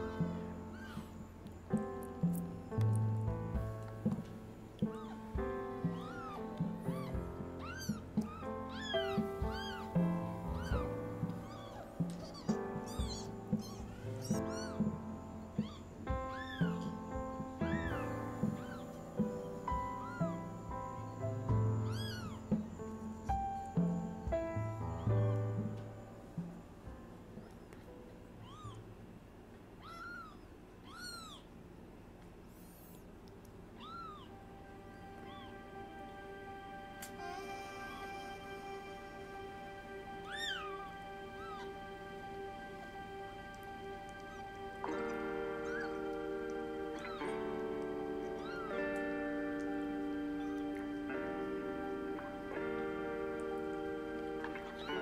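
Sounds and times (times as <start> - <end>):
kitten mewing: 0.0 - 1.3, 4.8 - 15.0, 15.6 - 18.9, 19.8 - 20.6, 21.8 - 22.8, 28.4 - 28.8, 29.8 - 31.5, 33.8 - 34.3, 35.2 - 35.5, 40.2 - 41.8, 44.2 - 47.4, 48.2 - 49.6
soft piano music: 0.0 - 31.6, 32.4 - 55.0.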